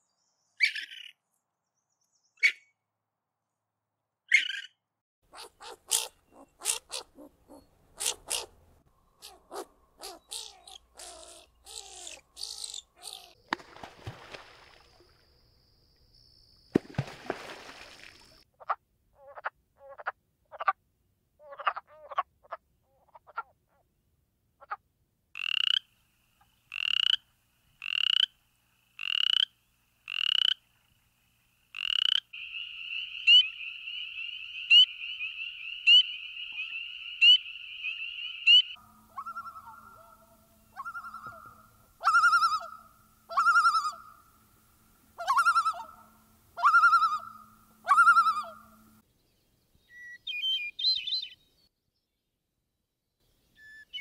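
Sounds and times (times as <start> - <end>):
frogs clucking: 5.3 - 8.5, 9.1 - 15.2, 25.4 - 30.9, 31.7 - 44.2
raccoon chittering: 5.3 - 8.6, 9.2 - 13.4
spring peepers peeping: 5.4 - 13.4, 31.7 - 42.7.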